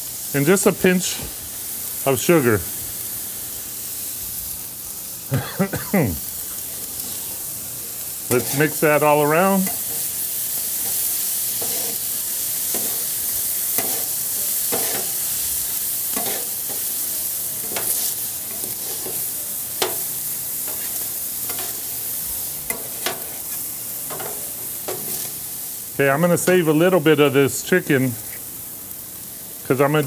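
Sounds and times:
food sizzling on griddle: 0:00.0 - 0:30.0
metal spatulas scraping: 0:08.3 - 0:08.8, 0:11.6 - 0:12.0, 0:14.7 - 0:15.2, 0:16.2 - 0:16.8, 0:17.6 - 0:19.2.

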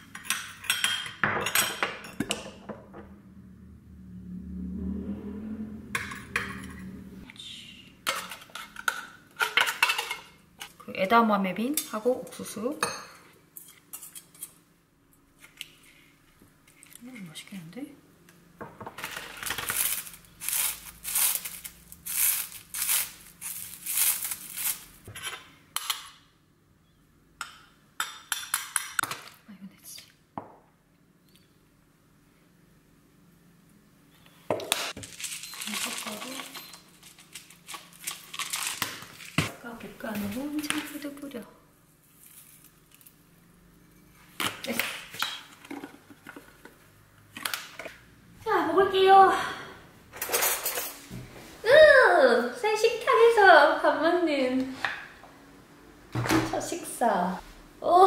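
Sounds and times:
low hum: 0:02.7 - 0:08.1.

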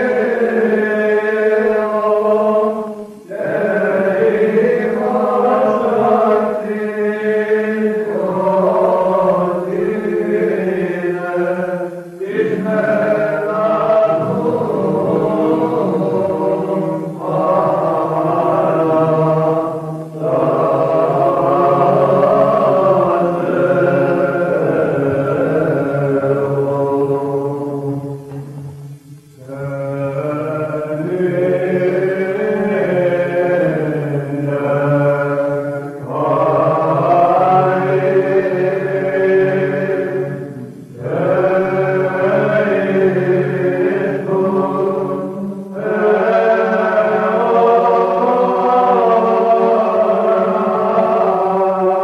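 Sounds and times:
men singing chant melody: 0:00.0 - 0:52.0
low held drone note: 0:14.1 - 0:17.2.

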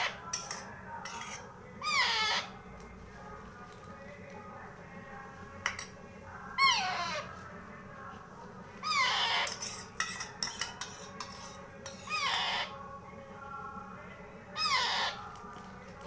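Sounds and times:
parrot chick squawking: 0:01.1 - 0:02.6, 0:06.6 - 0:07.3, 0:08.8 - 0:09.6, 0:12.0 - 0:12.8, 0:14.6 - 0:15.3.

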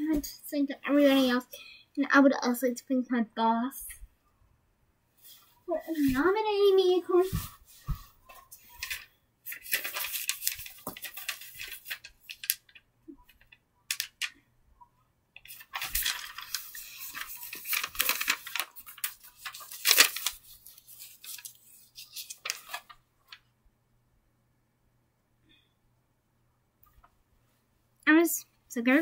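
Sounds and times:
paper rustling and crinkling: 0:05.2 - 0:14.4, 0:15.5 - 0:23.4.

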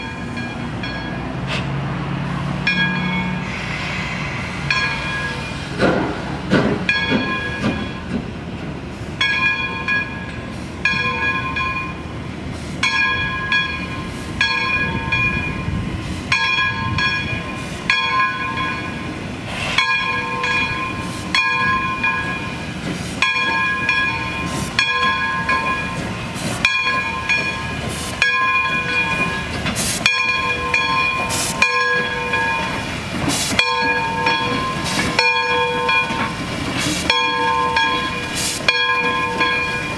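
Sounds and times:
locomotive bell ringing: 0:00.0 - 0:01.5, 0:02.4 - 0:05.8, 0:06.8 - 0:08.2, 0:09.2 - 0:12.2, 0:12.8 - 0:39.9
steam locomotive rumble: 0:00.0 - 0:39.9
hiss of steam: 0:03.2 - 0:06.9, 0:18.8 - 0:23.2, 0:24.3 - 0:26.6, 0:27.7 - 0:35.2, 0:36.3 - 0:39.8.

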